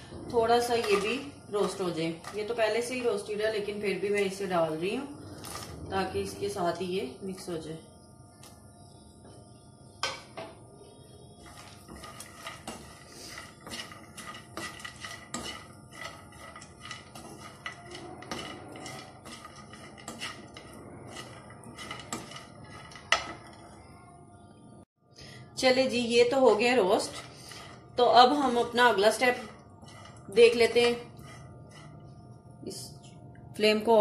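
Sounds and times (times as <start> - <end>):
metal spoon scraping frying pan: 0.3 - 6.8, 11.4 - 23.8, 26.4 - 32.2.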